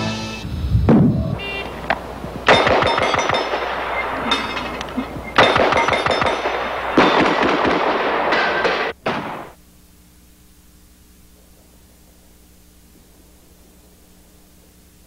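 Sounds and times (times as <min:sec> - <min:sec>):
faint hum: 0:00.0 - 0:15.0
rapid gunfire bursts: 0:01.4 - 0:09.6.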